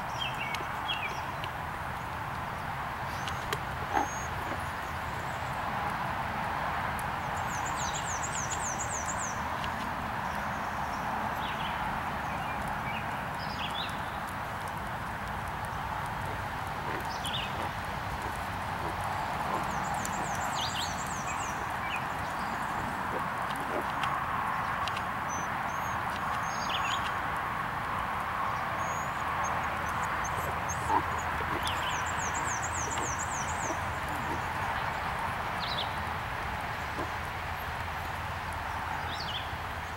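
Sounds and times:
horse hoofbeats on sand: 13.7 - 27.2, 29.0 - 37.7.

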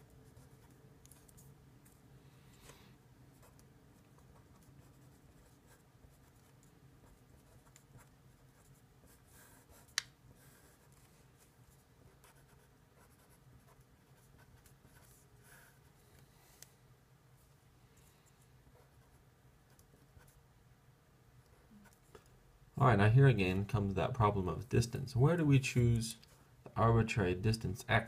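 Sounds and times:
marker scratching on paper: 4.2 - 15.8.

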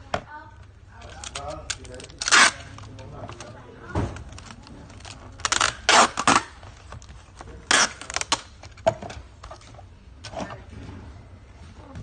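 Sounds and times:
packing tape pulled off roll: 1.0 - 8.8.

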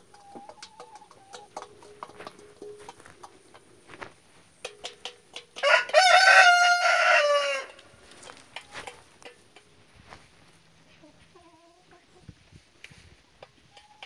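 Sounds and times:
rooster crowing: 5.6 - 7.8.

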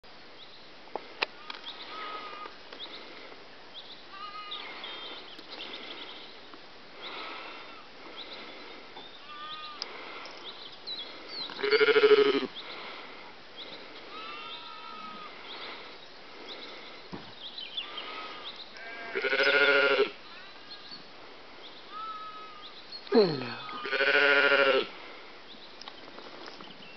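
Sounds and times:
sheep bleating: 4.1 - 5.0, 9.2 - 9.8, 11.6 - 12.5, 14.1 - 15.3, 18.8 - 20.8, 23.4 - 24.9.

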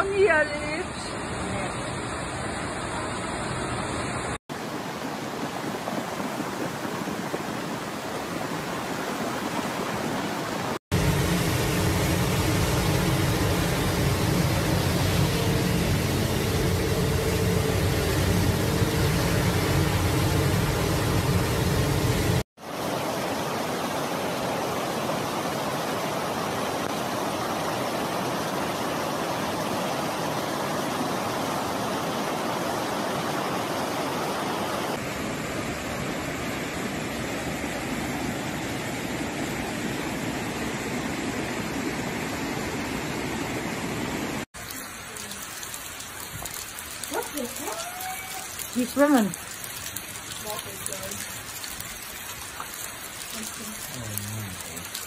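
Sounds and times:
floodwater running down a street: 0.0 - 38.2, 44.4 - 55.0
water pouring over a wall: 5.4 - 22.5, 44.5 - 55.0.

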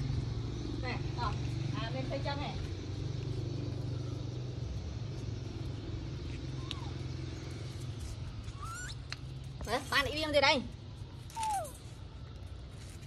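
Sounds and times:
rising squeak: 8.4 - 9.2, 11.3 - 11.9.

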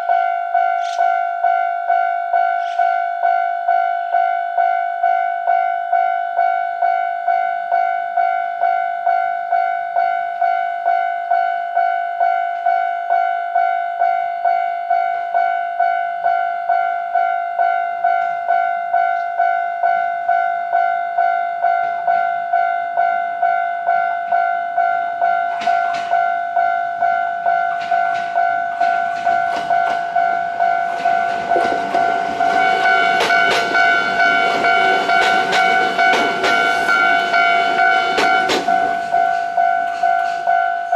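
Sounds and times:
electric train rumble: 24.7 - 40.9
train clicks: 25.2 - 40.9.

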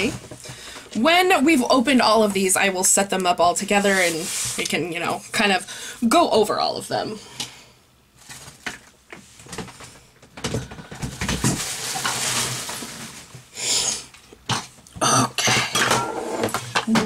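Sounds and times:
small objects being handled: 11.2 - 13.5.

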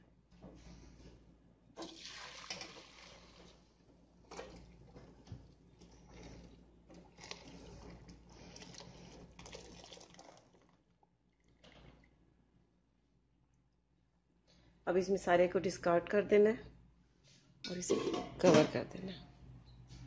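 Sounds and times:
liquid pouring through strainer: 1.8 - 3.6, 6.0 - 12.2.

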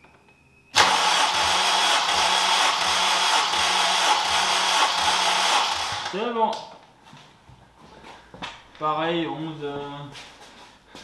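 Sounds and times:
engine cranking by starter motor: 0.8 - 6.2.

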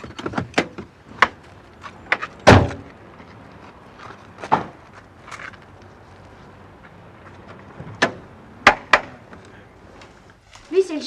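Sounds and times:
car door slamming: 2.1 - 2.9, 4.4 - 4.8, 7.8 - 9.2.

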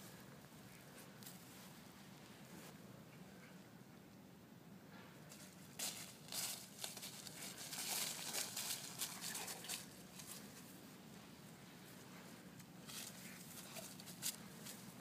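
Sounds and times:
dry leaves rustling and crackling: 5.3 - 10.7.

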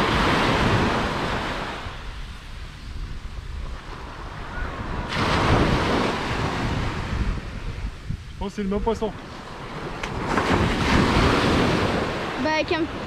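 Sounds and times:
sea surf on beach: 0.0 - 13.0
wind buffeting microphone: 0.0 - 13.0
wave breaking: 3.1 - 8.0, 9.1 - 13.0.

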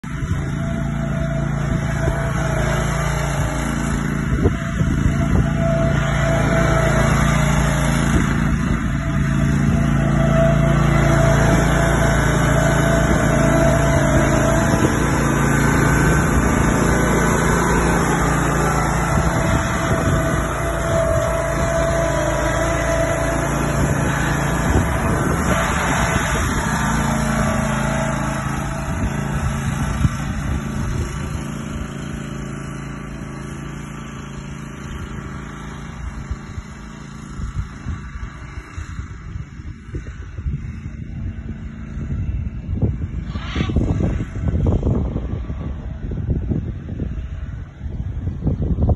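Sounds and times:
ride-on lawn mower engine running: 0.0 - 48.9.

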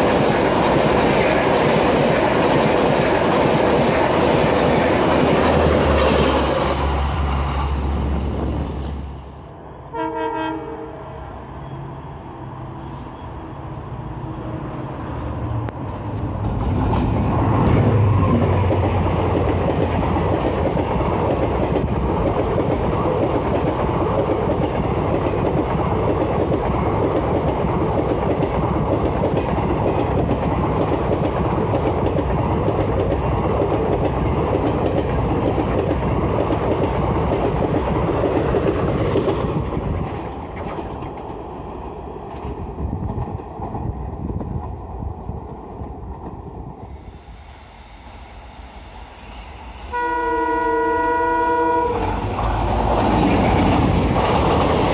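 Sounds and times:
train wheels clattering on rails: 0.0 - 8.9, 15.7 - 44.9, 51.8 - 54.9.

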